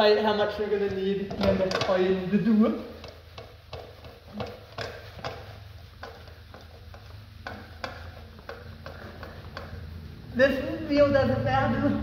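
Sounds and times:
rag scrubbing metal wheel: 0.0s - 12.0s
steady low hum: 0.0s - 12.0s.

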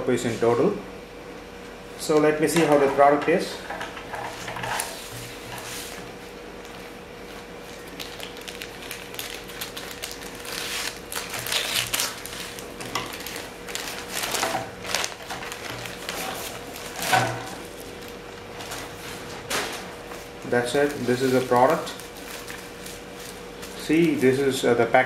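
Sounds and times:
plastic mailer bag crinkling: 7.6s - 24.6s.

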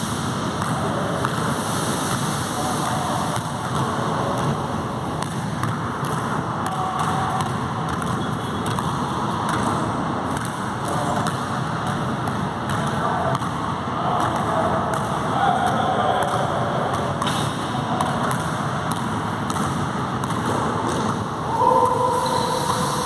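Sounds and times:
steady rushing noise: 0.0s - 5.2s
basketball bouncing on hard floor: 5.2s - 13.6s, 16.2s - 21.2s.

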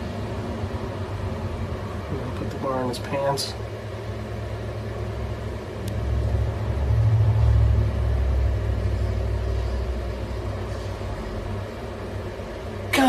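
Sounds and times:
low rumble: 5.8s - 11.2s.

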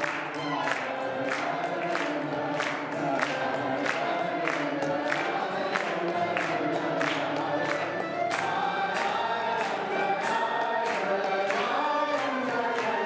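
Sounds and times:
congregation singing along: 0.0s - 13.0s
people clapping in time: 0.0s - 13.0s
man singing into microphone: 8.6s - 13.0s.

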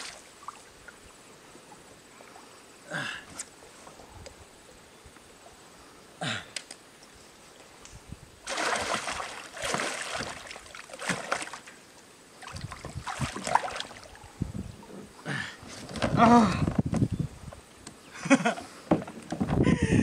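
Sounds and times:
water splashing beside kayak: 8.4s - 14.3s.

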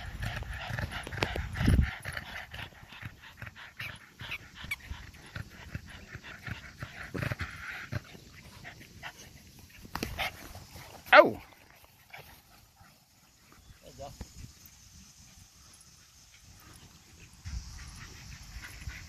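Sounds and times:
dogs panting: 0.0s - 19.0s
dogs scuffling in grass: 7.1s - 19.0s.

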